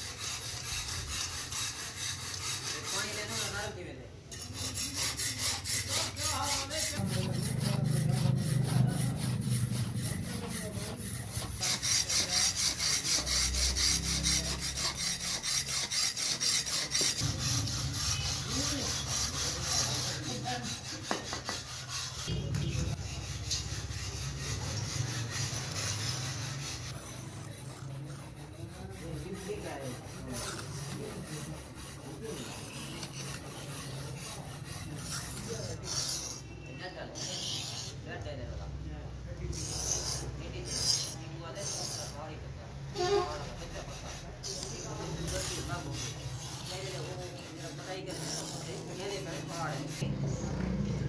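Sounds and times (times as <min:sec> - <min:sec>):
iron scraper rasping on stone: 0:00.0 - 0:38.4, 0:39.5 - 0:42.4, 0:43.0 - 0:50.7.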